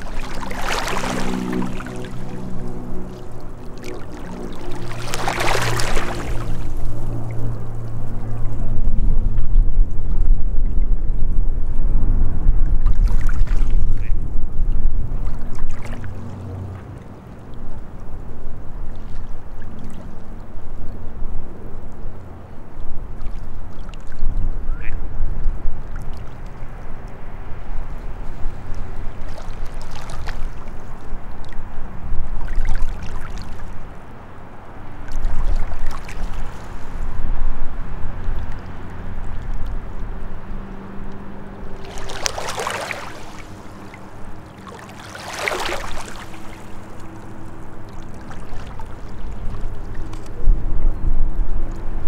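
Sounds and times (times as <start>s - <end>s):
waves lapping over rocks: 0.0s - 8.2s, 27.8s - 31.6s, 32.2s - 41.0s, 41.6s - 50.2s
water splashes: 0.0s - 9.0s, 12.7s - 14.1s, 14.8s - 24.5s, 25.8s - 50.4s
steady low rumble: 0.0s - 52.0s.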